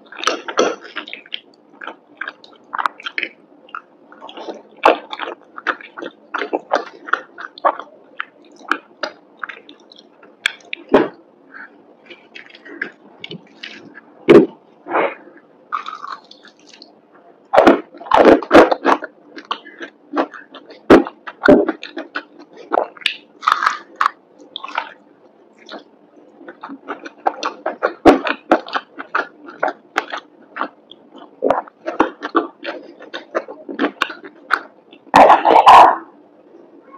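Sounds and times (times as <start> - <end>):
crunching fried chicken: 0.0 - 14.0, 15.7 - 17.0, 17.6 - 35.9
mouth sounds: 31.3 - 36.9.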